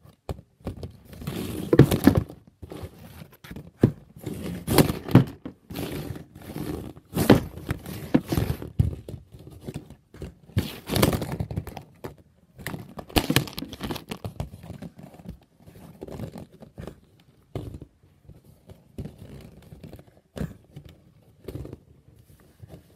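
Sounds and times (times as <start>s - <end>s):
plastic toy parts clattering: 12.6s - 14.8s.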